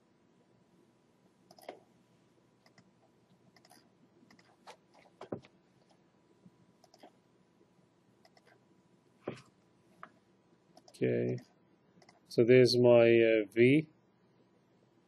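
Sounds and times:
computer mouse clicks: 1.5s - 1.8s, 2.6s - 2.9s, 3.5s - 6.0s, 6.8s - 7.2s, 8.2s - 8.6s, 10.8s - 12.3s.

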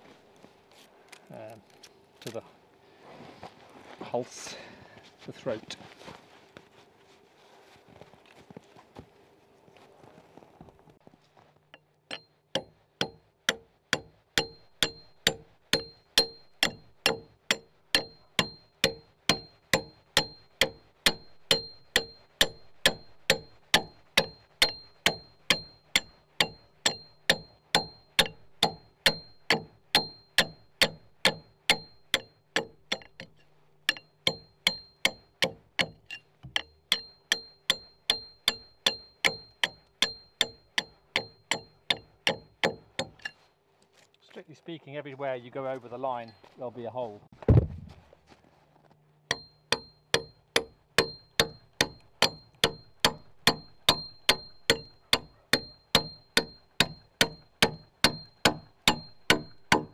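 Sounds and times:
axe chopping log: 49.3s - 59.9s.

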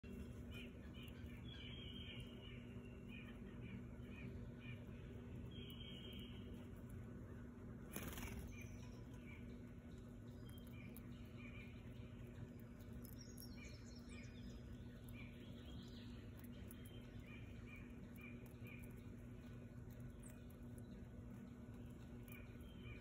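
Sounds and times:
songbirds chirping: 0.0s - 23.0s
bird wing flutter: 7.8s - 8.7s.

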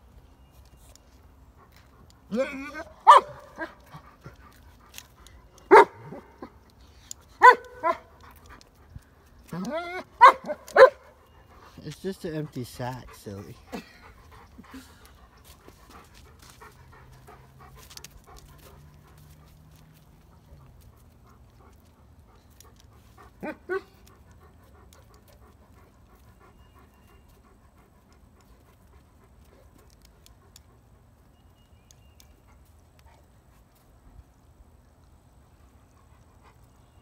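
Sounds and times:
dog crying: 9.5s - 10.9s
dog panting: 10.3s - 34.4s, 35.4s - 37.0s.

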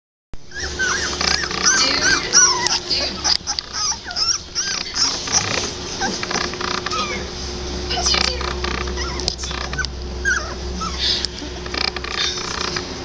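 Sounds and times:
puppies squealing and whimpering: 0.4s - 12.8s
steady low hum: 0.4s - 13.0s.

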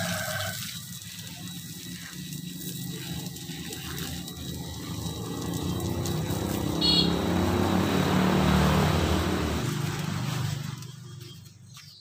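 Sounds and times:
vehicle engine passing by: 2.1s - 11.5s.

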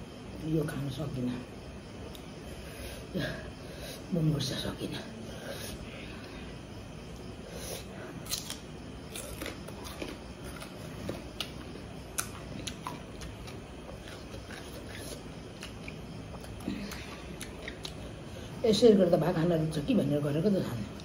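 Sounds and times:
faint steady background noise: 0.0s - 21.0s
chewing with wet mouth clicks: 8.3s - 18.2s.

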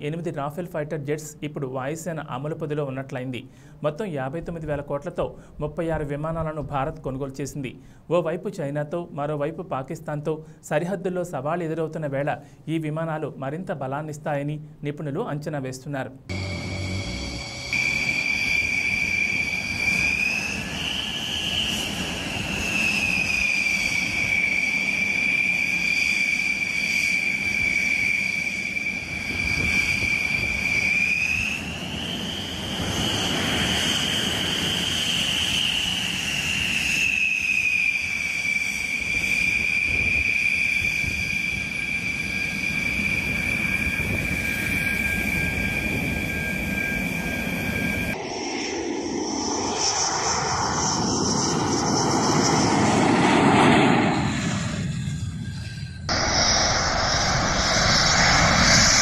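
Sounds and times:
jet engines whining: 16.3s - 59.0s.

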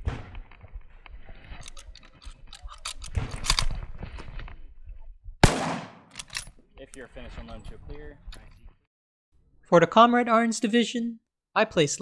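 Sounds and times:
rifle bolt clicking and scraping: 1.0s - 4.5s, 6.0s - 6.6s
loud rifle shot with echo: 5.4s - 6.1s.

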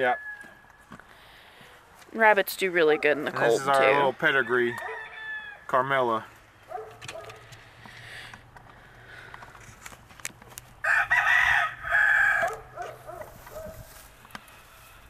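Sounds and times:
rooster crowing: 0.0s - 0.8s, 3.9s - 5.7s, 10.8s - 13.0s.

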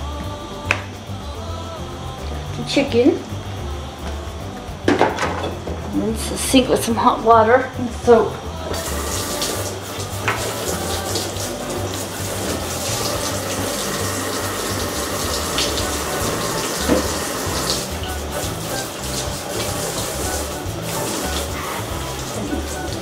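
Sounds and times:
tap running water into sink: 8.7s - 23.0s.

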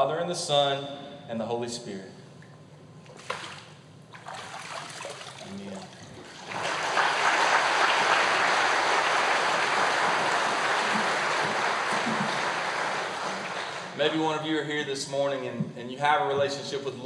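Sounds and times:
water sloshing: 2.4s - 6.9s
congregation applauding: 6.3s - 14.1s.

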